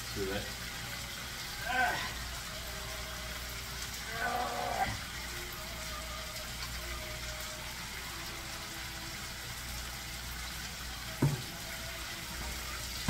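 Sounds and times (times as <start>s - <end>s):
meat sizzling in a frying pan: 0.0s - 13.0s
sharp knock: 11.2s - 11.4s.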